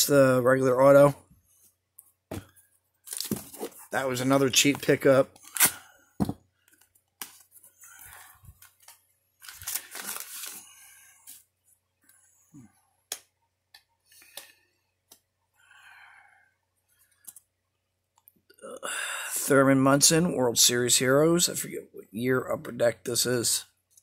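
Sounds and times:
paper envelope rustling: 6.7 - 11.4.

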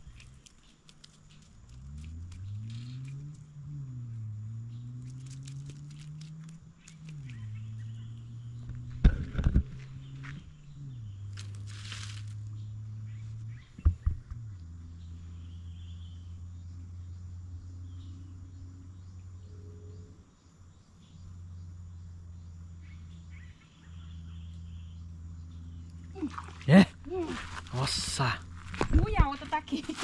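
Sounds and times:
faint bird chirps: 6.8 - 8.8, 12.4 - 26.8.

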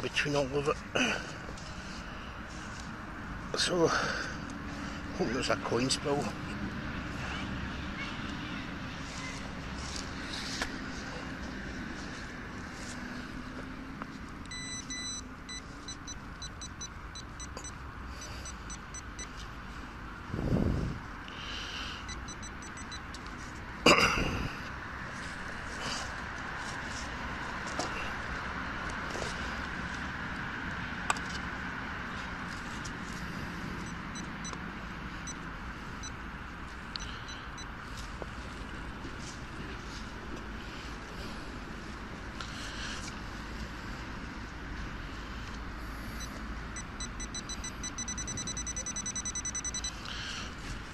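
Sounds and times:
distant road traffic: 0.0 - 50.9
metal detector pinpointer beeping: 14.5 - 19.3, 22.0 - 23.2, 33.8 - 34.6, 37.0 - 37.7, 46.2 - 50.1.

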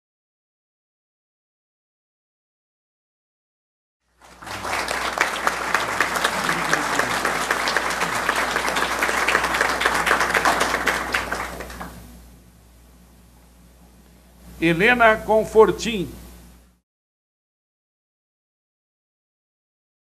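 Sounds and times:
audience applauding: 4.2 - 12.2.

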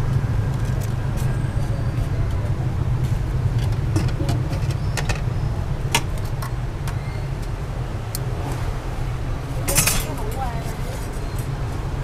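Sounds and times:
street traffic rumble: 0.0 - 12.0
utensils clinking: 9.6 - 10.5.

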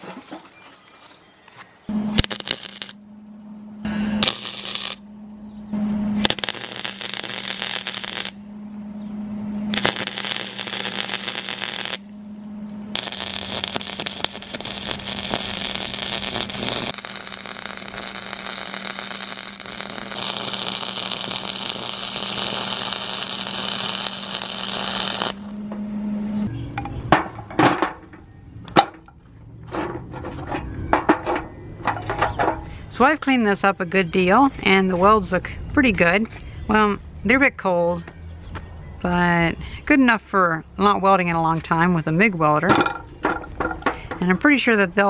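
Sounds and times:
low hum: 1.8 - 39.0
welding arc crackling: 2.1 - 3.0, 4.2 - 5.0, 6.2 - 8.5, 9.7 - 12.2, 12.9 - 25.5.

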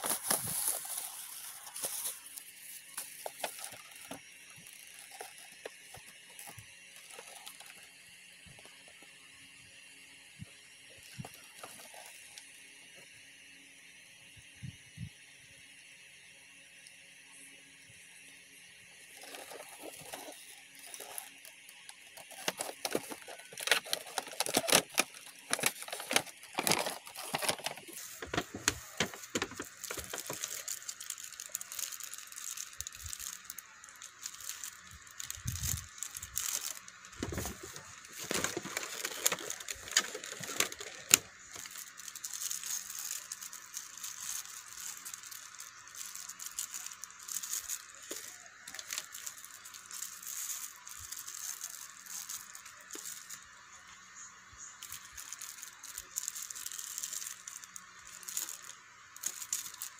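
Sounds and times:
plastic bags crinkling: 0.0 - 7.9, 10.9 - 12.4, 19.0 - 53.6, 54.7 - 59.9
plastic accessories clicking: 19.1 - 53.4.

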